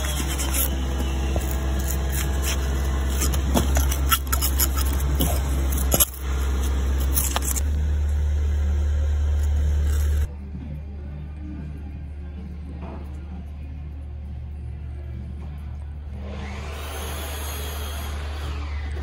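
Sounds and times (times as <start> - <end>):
metal tool scraping mortar joints: 0.0 - 7.6
steady low hum: 0.0 - 17.1.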